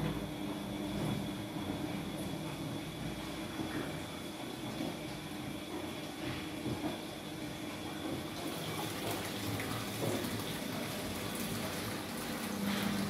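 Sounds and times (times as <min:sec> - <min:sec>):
washing machine running: 0:00.0 - 0:13.0.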